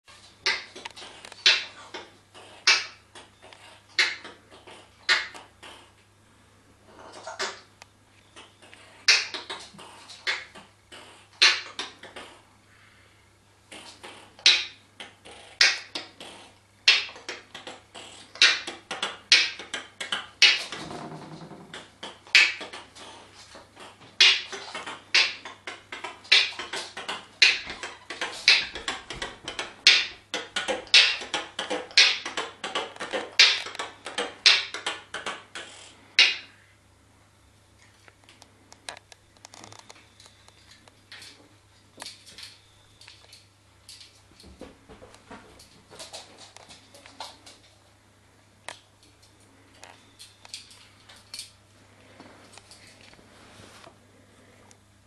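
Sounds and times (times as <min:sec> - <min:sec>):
parrot beatboxing clicks and pops: 0:00.4 - 0:05.9, 0:08.4 - 0:12.4, 0:13.7 - 0:36.6.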